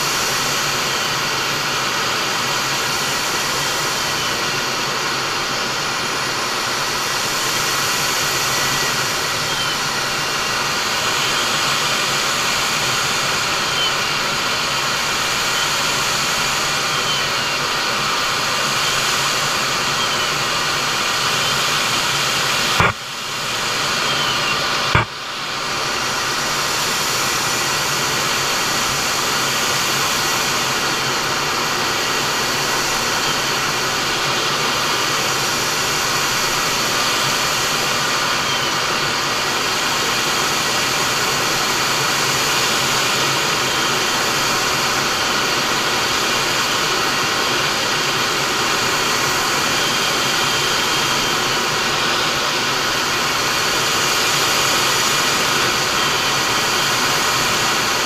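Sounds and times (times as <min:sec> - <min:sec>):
faint thin whine: 0:00.0 - 0:40.7
cockpit airflow and jet engines: 0:00.0 - 0:58.0.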